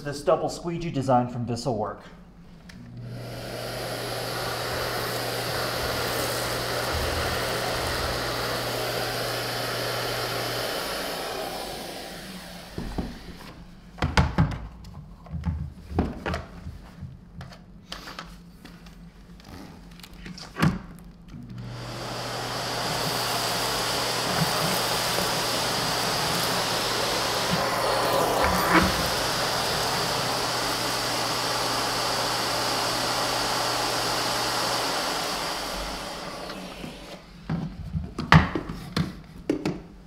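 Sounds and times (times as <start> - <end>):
vacuum cleaner running: 2.4 - 14.0, 21.4 - 38.0.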